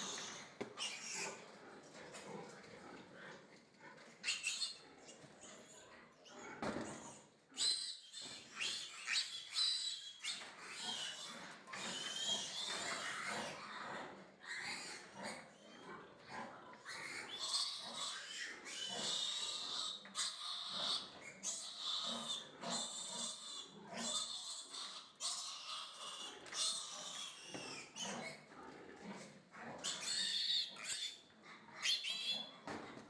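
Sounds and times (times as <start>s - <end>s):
piglet squealing: 7.0s - 13.3s, 29.8s - 31.2s, 31.8s - 32.5s.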